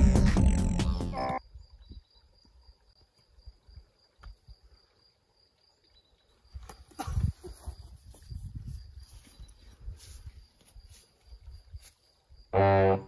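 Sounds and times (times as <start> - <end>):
music: 0.0 - 1.4.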